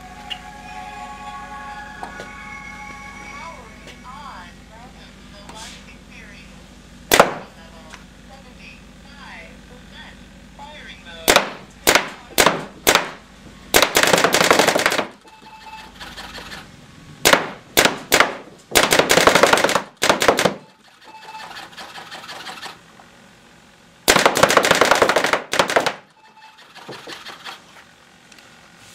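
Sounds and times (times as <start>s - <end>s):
paintball marker firing: 7.1s - 7.5s, 11.3s - 15.2s, 17.2s - 20.7s, 24.1s - 26.1s.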